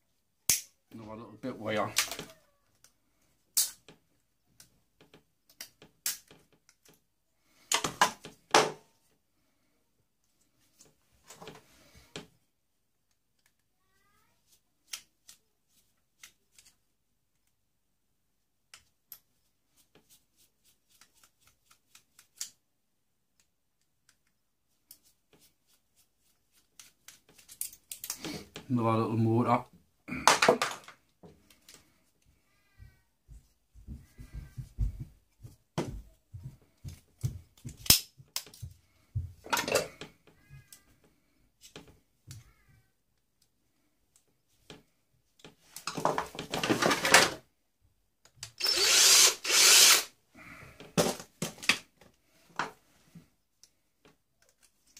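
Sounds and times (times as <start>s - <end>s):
plastic and metal parts clattering: 45.8s - 47.4s.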